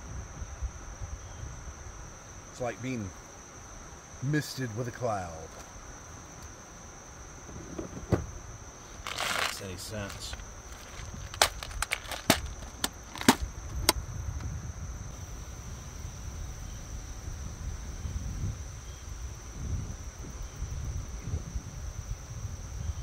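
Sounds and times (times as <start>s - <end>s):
crickets droning: 0.0s - 23.0s
sharp clicks and knocks: 9.1s - 14.0s.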